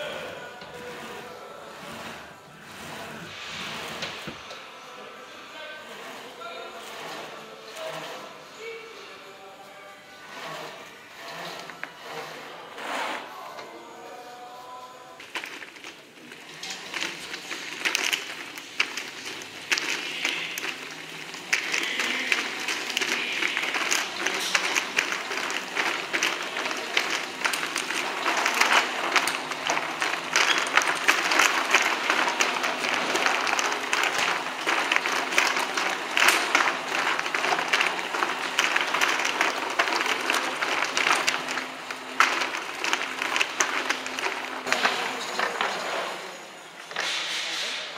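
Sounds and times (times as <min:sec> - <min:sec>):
hose crackling onto reel: 0:00.0 - 0:04.6, 0:05.8 - 0:08.5, 0:10.2 - 0:13.4, 0:15.2 - 0:46.3.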